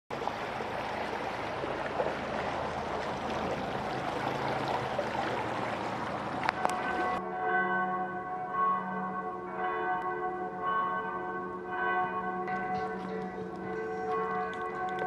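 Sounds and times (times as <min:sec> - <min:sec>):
outboard motor hum: 0:00.1 - 0:07.2
water rushing: 0:00.1 - 0:07.2.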